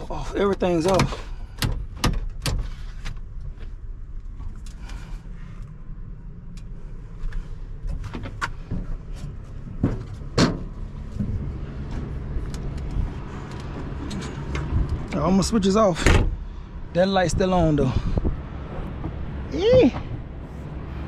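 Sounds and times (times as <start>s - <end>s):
low steady rumble: 0.0s - 21.0s
knocks and clicks in truck cab: 0.6s - 3.6s, 7.8s - 13.0s, 18.7s - 20.3s.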